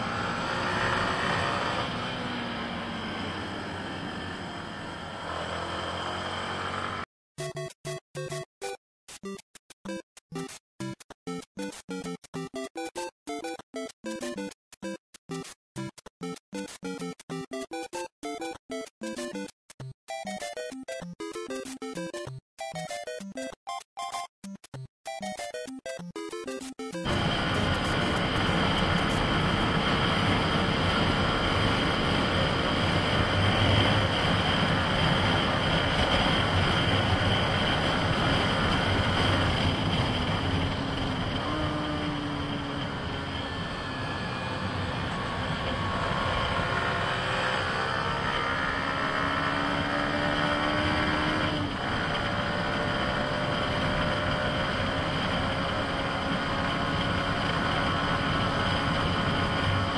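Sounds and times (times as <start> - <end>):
motorcycle engine running: 0.0 - 7.1, 27.0 - 59.9
wind and road noise: 0.0 - 7.1, 27.0 - 59.9.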